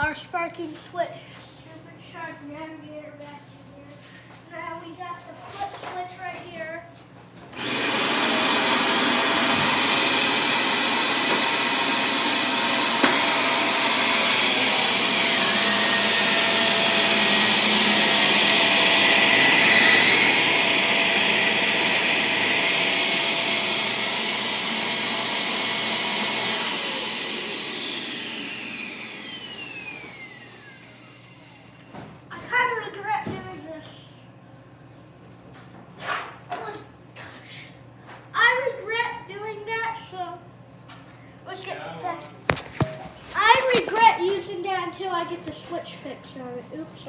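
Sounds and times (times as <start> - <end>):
vacuum cleaner motor whine: 7.5 - 32.1.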